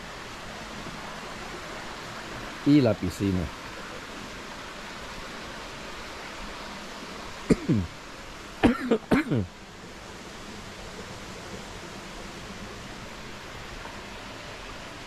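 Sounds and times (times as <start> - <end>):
steady hiss: 0.0 - 15.0
man coughing: 7.5 - 7.9, 8.6 - 9.5.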